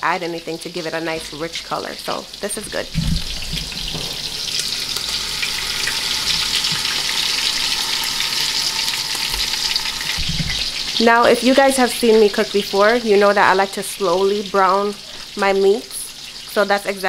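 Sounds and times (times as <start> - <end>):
meat sizzling in oil: 0.0 - 17.0.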